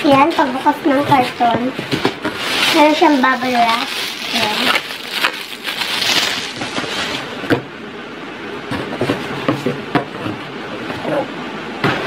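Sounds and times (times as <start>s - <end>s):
bubble wrap rustling and crinkling: 0.2s - 7.4s.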